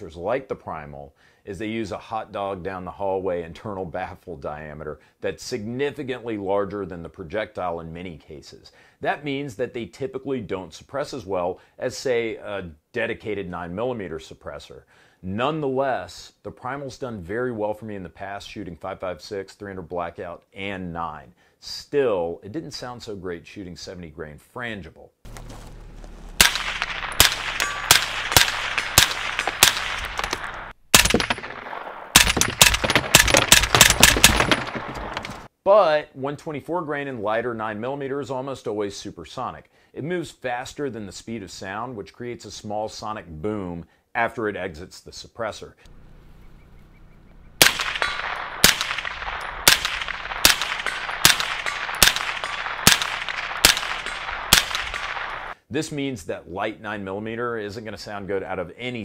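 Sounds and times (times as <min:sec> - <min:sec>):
suppressed gunshots cracking: 0:25.3 - 0:34.8, 0:47.6 - 0:55.6.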